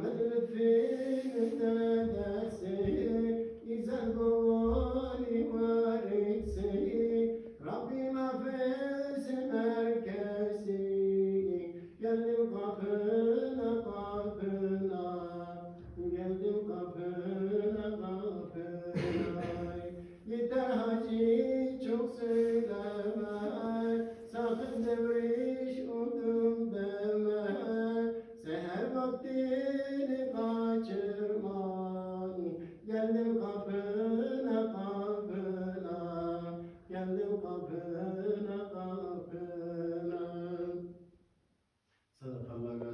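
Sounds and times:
person singing a hymn unaccompanied: 0.0 - 41.0, 42.2 - 42.9
singer breathing: 0.8 - 1.6, 11.7 - 12.0.

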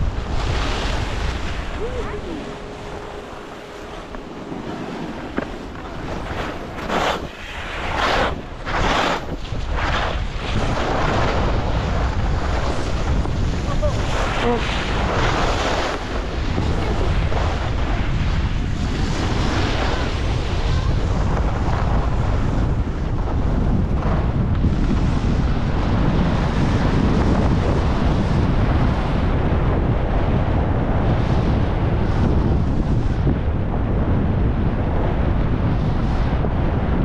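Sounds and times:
skis scraping over snow: 0.0 - 27.9
wind rushing over microphone: 0.0 - 37.0.

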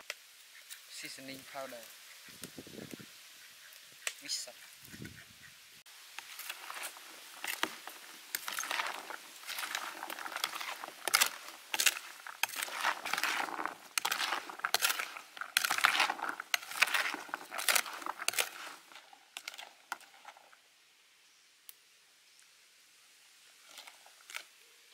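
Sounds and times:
spoon scraping plastic bowl: 6.2 - 20.5.

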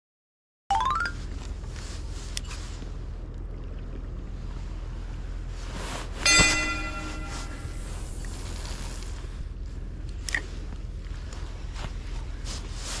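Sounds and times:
fishing tackle knock with metallic ring: 6.3 - 7.6.

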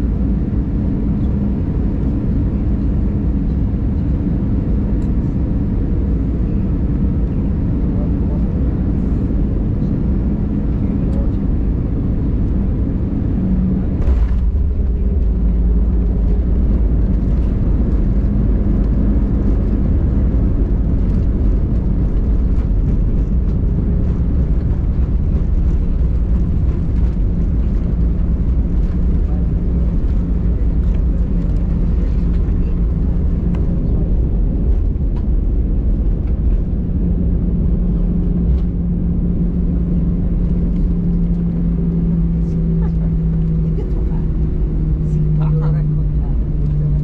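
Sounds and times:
low rumble of wheels and engines: 0.0 - 47.0
aircraft jolt: 13.1 - 36.7.

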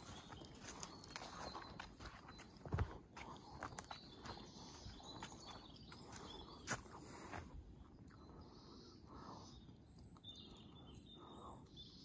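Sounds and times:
footsteps on forest floor: 0.0 - 7.6.

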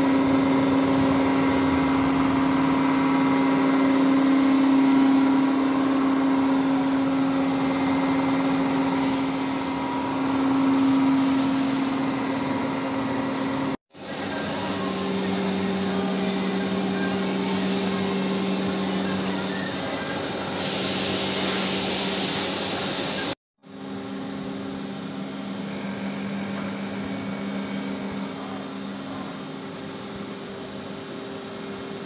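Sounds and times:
milling machine humming: 0.0 - 32.0
short bursts of hiss: 10.7 - 12.0, 20.6 - 23.4.

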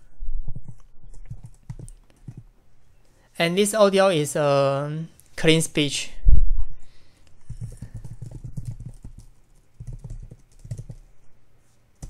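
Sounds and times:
computer keyboard typing: 1.2 - 2.5, 7.4 - 11.2.

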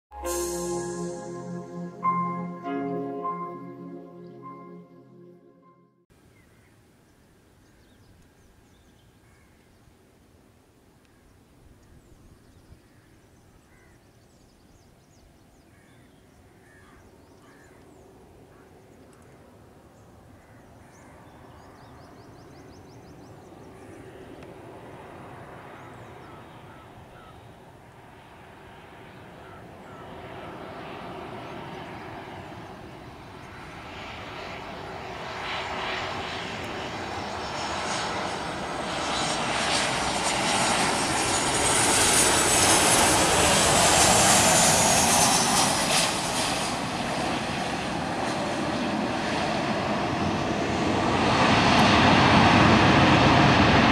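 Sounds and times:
jet airliner approaching: 22.4 - 53.9.

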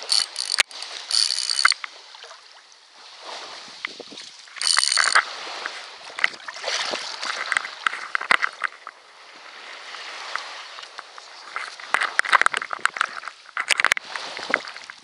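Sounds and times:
water splashing and sloshing: 0.0 - 15.0
clicks and knocks: 4.6 - 5.2.

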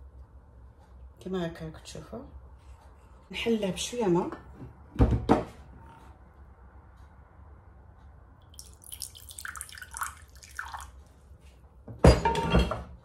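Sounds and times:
water pouring into a glass: 8.4 - 11.0.

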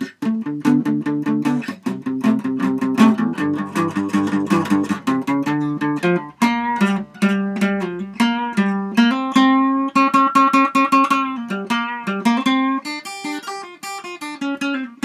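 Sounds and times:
fingerpicked acoustic guitar: 0.0 - 15.0.

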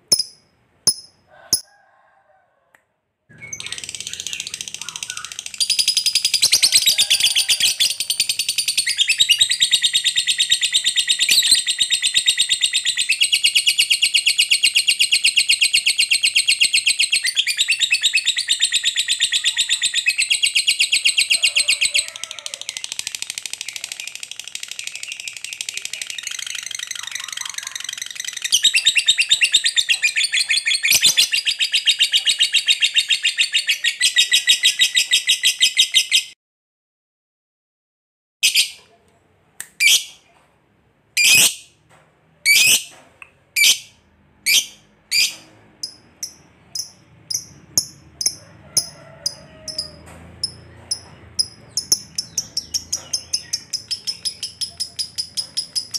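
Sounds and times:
lovebird chattering trill: 3.5 - 21.4, 22.8 - 36.2, 44.5 - 55.9.

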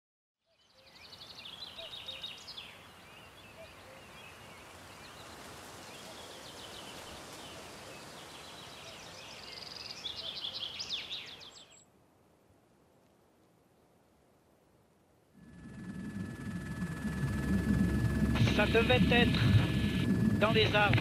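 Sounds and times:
small birds singing: 0.5 - 11.8
outdoor ambience hiss: 0.6 - 21.0.

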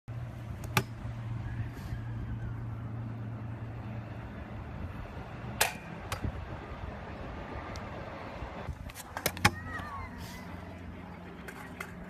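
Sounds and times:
scooter wheels rolling: 5.2 - 12.0
scooter clacking on ground: 11.2 - 12.0.

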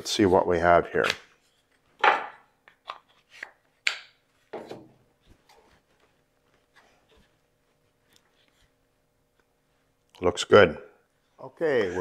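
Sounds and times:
wood knocks and scrapes: 4.5 - 5.7.

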